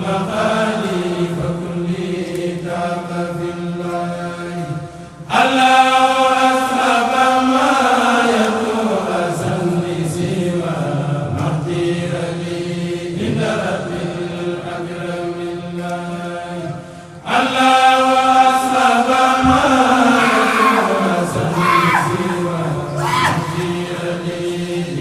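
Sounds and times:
group of voices chanting: 17.3 - 25.0.

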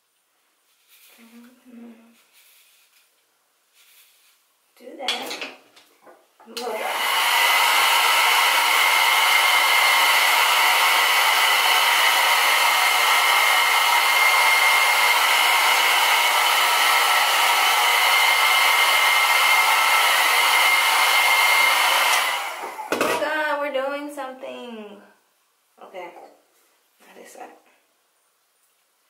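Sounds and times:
hair dryer blowing: 6.5 - 23.2.

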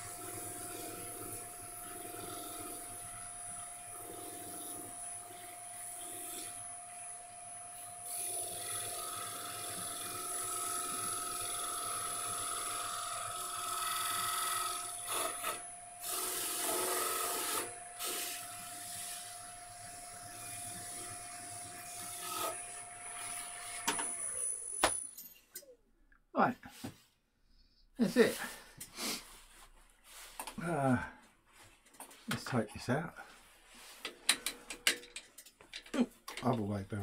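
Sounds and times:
wood lathe humming: 0.0 - 24.8.

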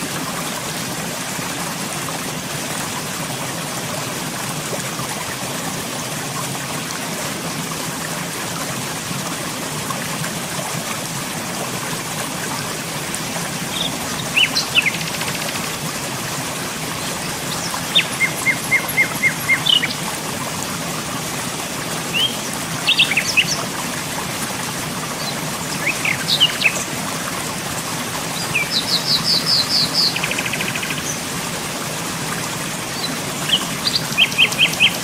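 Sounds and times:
birds chirping: 13.7 - 15.6, 16.9 - 20.1, 22.1 - 23.6, 25.2 - 26.9, 28.4 - 31.2, 33.0 - 35.0.

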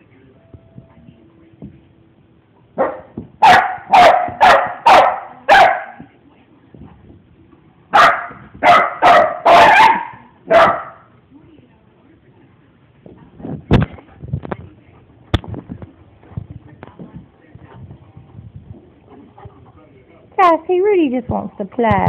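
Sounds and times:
dog barking: 2.8 - 6.1, 7.9 - 11.1.

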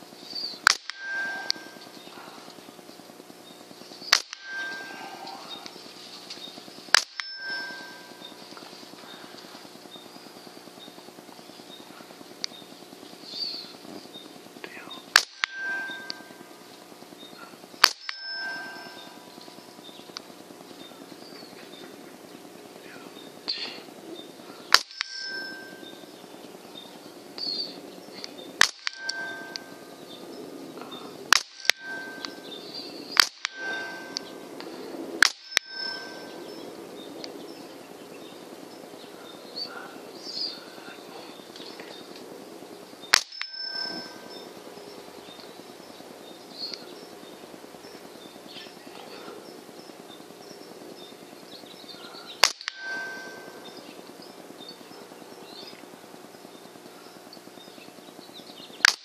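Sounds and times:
metal bell target ringing: 0.6 - 2.8, 4.1 - 5.9, 6.9 - 9.7, 15.2 - 21.0, 24.7 - 27.7, 28.4 - 37.7, 43.1 - 45.4, 51.9 - 54.8
air rifle shots: 0.6 - 3.4, 4.0 - 6.0, 6.6 - 8.6, 13.7 - 20.6, 24.7 - 26.1, 28.4 - 36.3, 43.1 - 44.3, 52.4 - 53.8.

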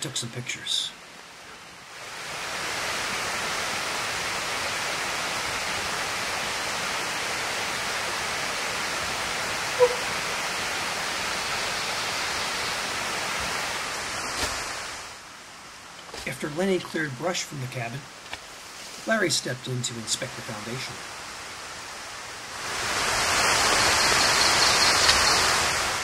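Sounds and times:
running water rushing: 0.0 - 26.0
short squeak: 9.8 - 10.1.

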